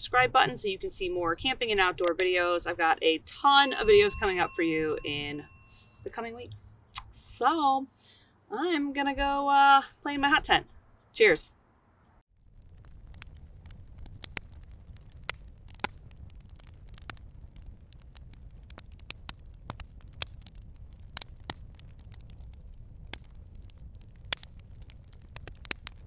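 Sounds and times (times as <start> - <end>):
stove low rumble: 0.0 - 6.7, 12.4 - 26.0
wood fire crackling: 0.9 - 5.6, 12.3 - 26.0.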